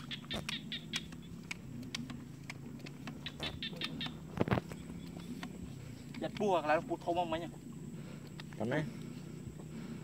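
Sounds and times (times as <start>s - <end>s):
sharp clicks: 0.0s - 5.5s
small birds chirping: 0.0s - 10.0s.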